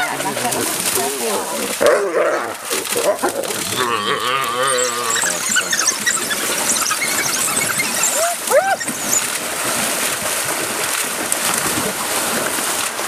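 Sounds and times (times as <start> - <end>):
water splashing: 0.0 - 13.0
animals squealing and chirping: 3.6 - 9.3
loud yelps: 3.8 - 9.2.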